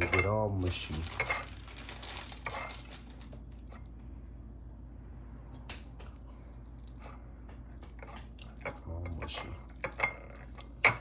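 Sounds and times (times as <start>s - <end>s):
banana squishing: 0.6s - 4.0s, 5.5s - 10.9s.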